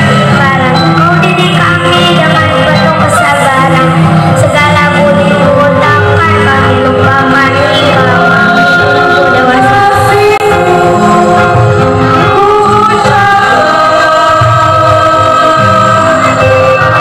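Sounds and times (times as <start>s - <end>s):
choir of children and adults singing: 12.3s - 17.0s.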